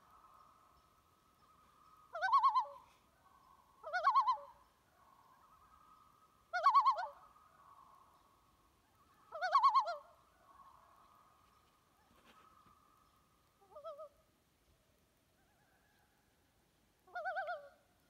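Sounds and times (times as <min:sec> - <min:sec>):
loon tremolo calls: 0:00.0 - 0:08.2
faint steady tone: 0:00.0 - 0:18.0.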